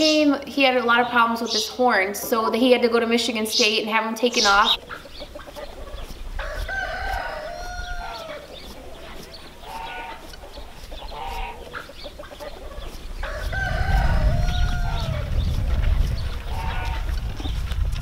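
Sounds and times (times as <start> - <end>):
chickens clucking: 0.0 - 18.0
rooster crowing: 6.4 - 8.5, 13.2 - 15.3
low rumble: 13.2 - 18.0.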